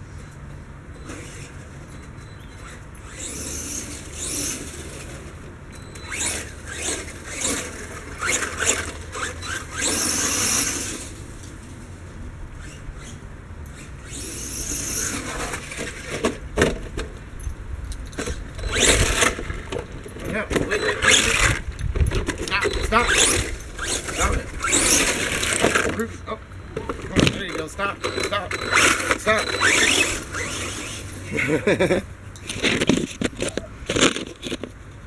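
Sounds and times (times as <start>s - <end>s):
rc truck motor whining: 1.0s - 11.9s, 12.5s - 16.4s, 18.2s - 19.9s, 20.5s - 31.5s.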